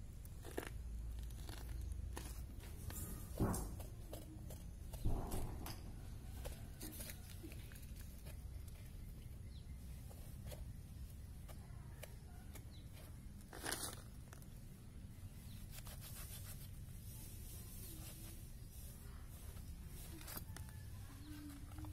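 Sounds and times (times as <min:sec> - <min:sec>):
hide tearing and rustling: 0:13.0 - 0:14.5.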